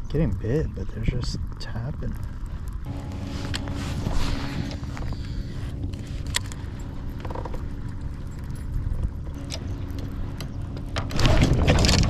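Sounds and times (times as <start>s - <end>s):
faint steady hum: 0.0s - 12.0s
wind rumbling on microphone: 0.0s - 12.0s.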